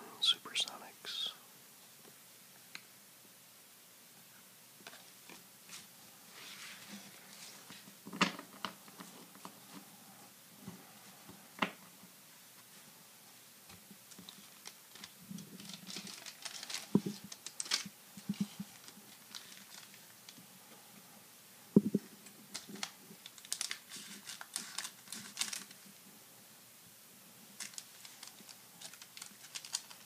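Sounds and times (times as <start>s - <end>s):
cards rustling and sliding: 4.8s - 9.9s, 14.1s - 20.4s, 22.5s - 25.8s, 27.6s - 30.0s.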